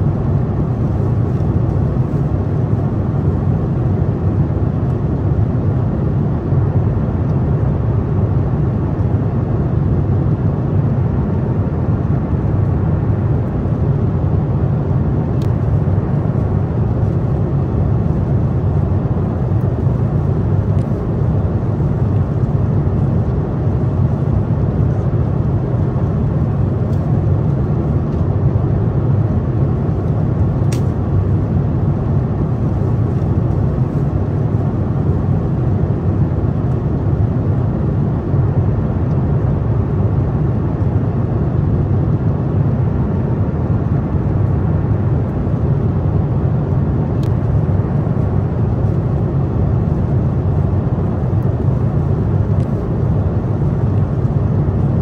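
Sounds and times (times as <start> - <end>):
airliner cabin drone: 0.0 - 55.0.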